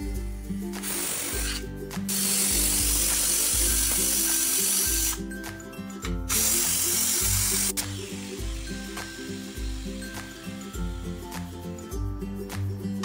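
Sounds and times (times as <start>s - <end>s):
pressure cooker steam hissing: 0.8s - 5.2s, 6.3s - 11.0s.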